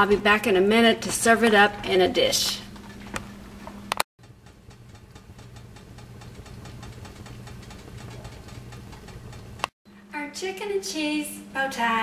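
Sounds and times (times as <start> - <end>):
steady low hum: 1.7 - 12.0
faint ticking and rattling: 4.2 - 9.7.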